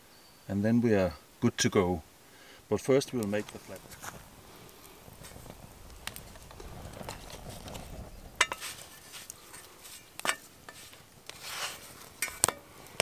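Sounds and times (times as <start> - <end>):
wooden spatula scraping griddle: 5.2 - 13.0.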